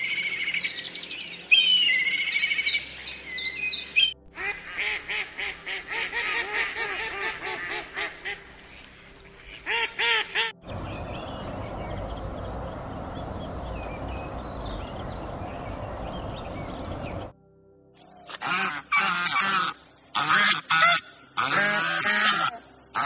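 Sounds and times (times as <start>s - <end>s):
steady rushing background noise: 10.6s - 17.3s
duck quacking: 18.4s - 23.0s.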